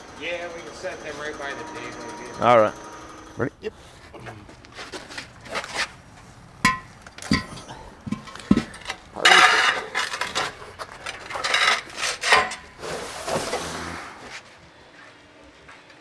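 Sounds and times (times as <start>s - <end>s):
metal parts knocking and clinking: 6.6s - 12.7s
metal parts scraping: 6.6s - 13.7s.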